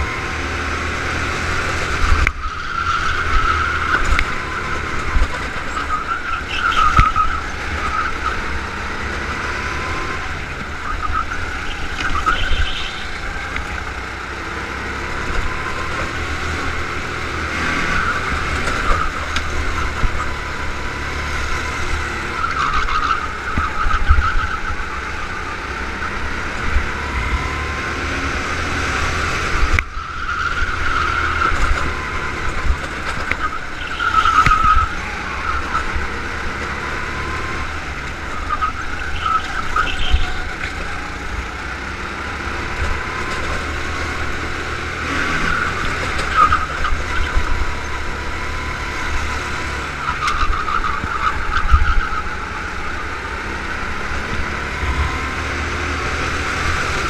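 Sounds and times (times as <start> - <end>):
go-kart engine racing: 0.0 - 57.0
tyres squealing: 1.5 - 16.5, 29.4 - 41.3, 43.0 - 49.0, 49.7 - 53.3.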